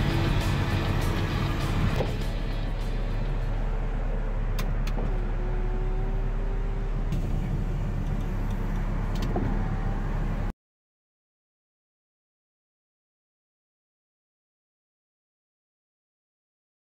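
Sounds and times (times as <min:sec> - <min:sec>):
car low hum: 0:00.0 - 0:10.5
power window motor whining: 0:04.3 - 0:10.5.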